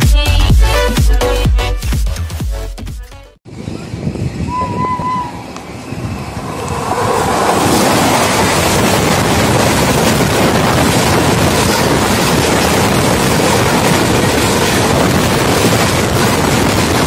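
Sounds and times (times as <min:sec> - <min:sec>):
wind buffeting microphone: 0:03.5 - 0:17.0
train passing at speed: 0:03.6 - 0:17.0.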